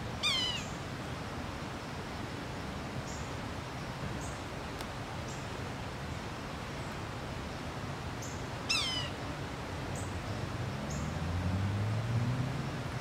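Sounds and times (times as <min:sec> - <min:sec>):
bird mewing call: 0:00.2 - 0:00.8, 0:08.7 - 0:09.2.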